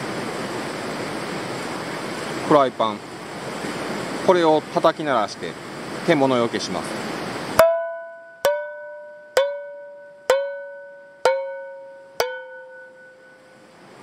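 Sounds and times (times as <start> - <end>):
metal frying pan struck ringing: 7.6 - 13.6.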